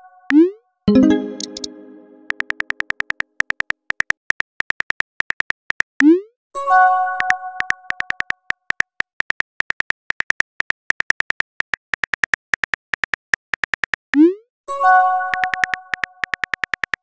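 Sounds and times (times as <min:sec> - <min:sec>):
smartphone keyboard taps: 0:02.3 - 0:05.9, 0:15.3 - 0:17.0.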